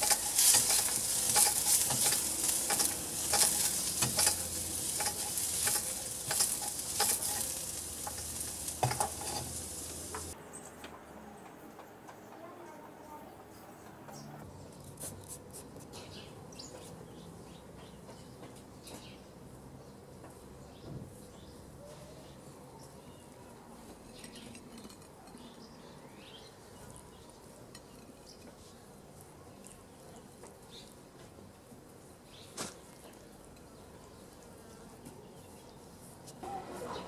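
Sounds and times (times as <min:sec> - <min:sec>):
meat sizzling in a frying pan: 0:00.0 - 0:10.4
pan clattering: 0:00.0 - 0:10.4
faint birds chirping: 0:00.0 - 0:37.0.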